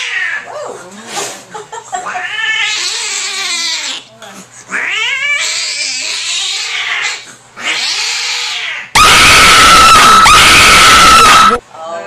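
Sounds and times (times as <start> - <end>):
cat hissing yowls: 4.7 - 11.6
shrill piercing jump-scare tone: 9.0 - 11.6.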